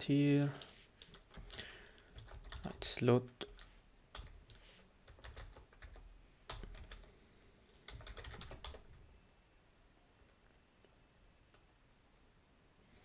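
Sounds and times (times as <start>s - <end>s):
keyboard typing: 0.6s - 7.1s, 7.9s - 9.0s.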